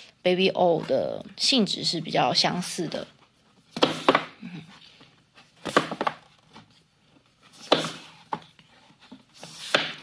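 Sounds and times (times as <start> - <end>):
books knocking against shelf: 3.8 - 4.4, 5.6 - 6.2, 7.6 - 8.5.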